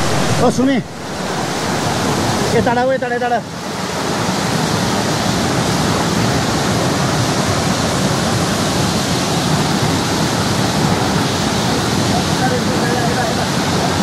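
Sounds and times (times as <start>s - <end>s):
stream water rushing: 0.0s - 14.0s.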